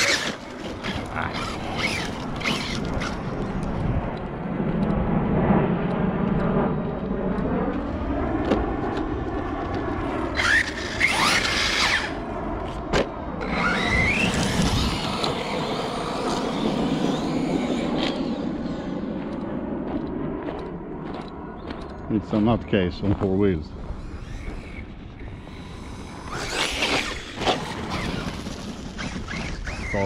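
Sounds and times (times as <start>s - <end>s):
rc truck motor whining: 0.0s - 3.8s, 10.1s - 19.4s, 23.8s - 30.0s.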